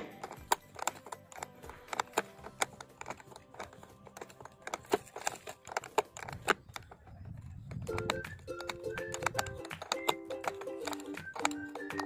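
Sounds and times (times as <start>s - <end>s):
faint background music: 0.0s - 12.0s
plastic cable tie clicks: 0.0s - 12.0s.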